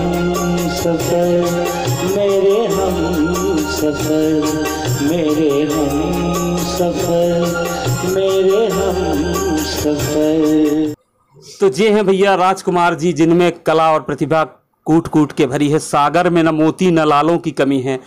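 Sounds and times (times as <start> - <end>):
bass line: 0.0 - 10.9.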